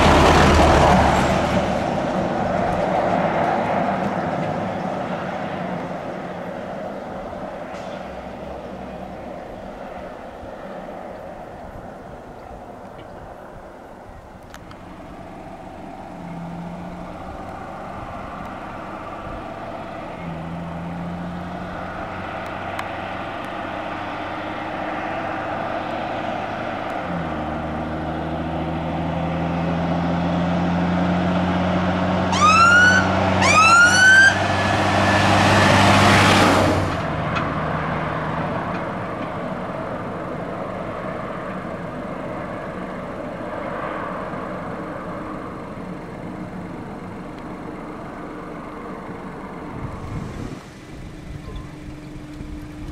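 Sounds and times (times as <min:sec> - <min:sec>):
fire engine engine: 0:00.0 - 0:52.9
siren whoops: 0:32.3 - 0:34.8.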